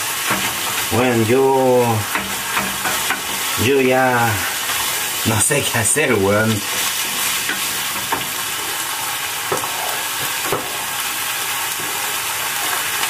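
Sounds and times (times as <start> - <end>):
food sizzling in a pan: 0.0 - 13.0
wooden spoon stirring: 0.2 - 5.2
spoon knocking against pan: 2.1 - 3.3.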